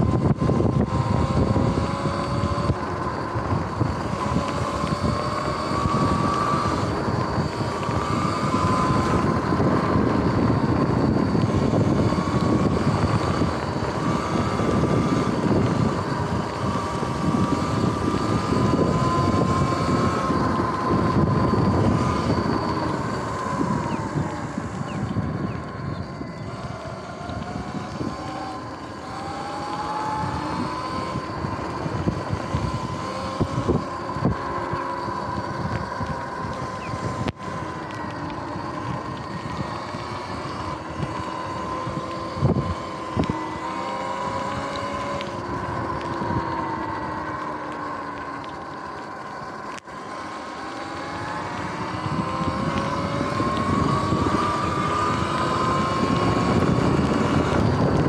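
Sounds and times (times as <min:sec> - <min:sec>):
electric motor whining: 0:00.0 - 0:58.0
tyres on wet pavement: 0:00.0 - 0:58.0
wind on microphone: 0:00.0 - 0:58.0.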